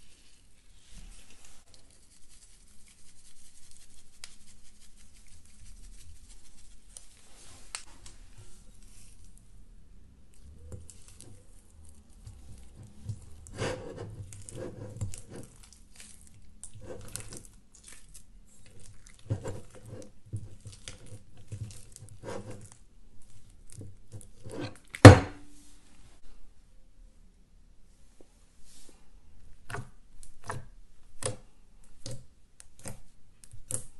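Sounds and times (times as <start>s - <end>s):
slime crackling and squishing: 10.3s - 13.6s, 14.2s - 24.4s.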